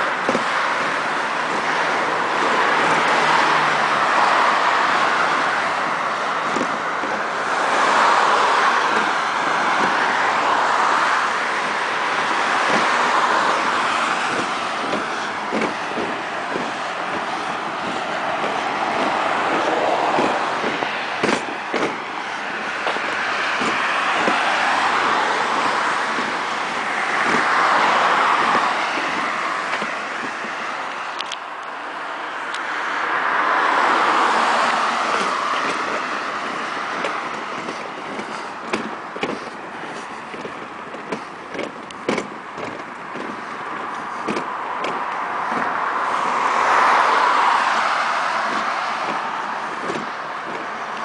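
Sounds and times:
cars passing: 0:00.0 - 0:51.0
short clicks and knocks: 0:35.0 - 0:47.0, 0:47.6 - 0:51.0.

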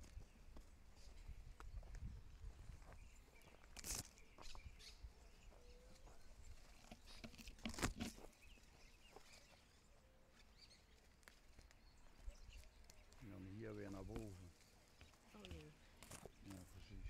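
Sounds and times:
footsteps on rocky trail: 0:00.0 - 0:09.7.

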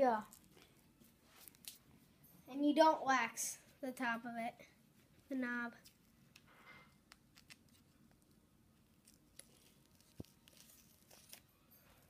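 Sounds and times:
soft rustle of tape: 0:00.0 - 0:02.5, 0:04.8 - 0:12.0.

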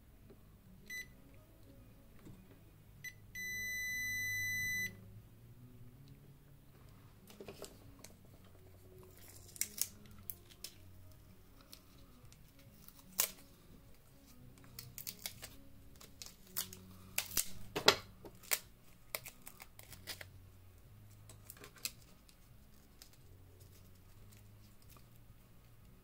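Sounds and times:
faint background music: 0:00.0 - 0:26.0
electronic beeper beeping: 0:03.0 - 0:05.0.

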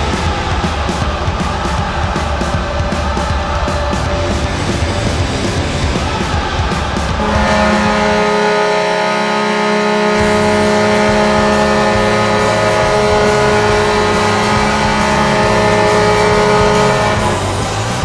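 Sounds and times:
goal horn blast: 0:07.2 - 0:17.7.

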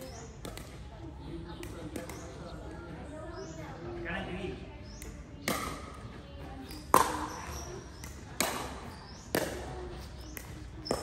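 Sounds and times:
racket hitting ball: 0:05.4 - 0:05.9, 0:06.7 - 0:11.0.

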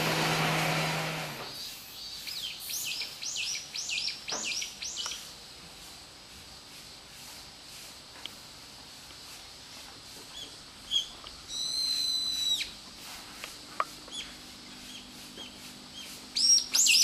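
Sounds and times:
bird calling: 0:01.5 - 0:05.3, 0:10.3 - 0:12.8, 0:14.1 - 0:17.0.

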